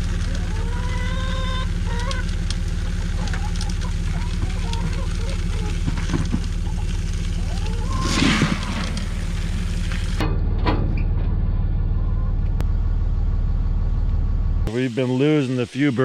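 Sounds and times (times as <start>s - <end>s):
grain pouring into plastic pail: 0.0s - 10.2s
engine idling: 0.0s - 15.4s.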